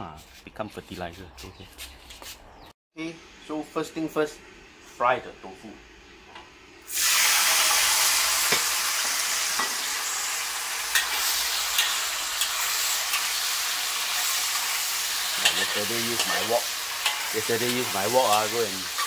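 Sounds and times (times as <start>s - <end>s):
tofu sizzling in hot oil: 6.9s - 19.0s
metal spatula scraping a wok: 10.8s - 19.0s.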